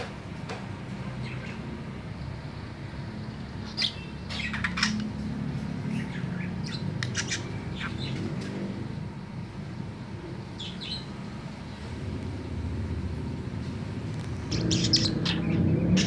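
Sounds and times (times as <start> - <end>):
steady low hum: 0.0 - 16.0
budgerigar chirping: 3.6 - 5.1, 5.9 - 8.2, 14.5 - 16.0.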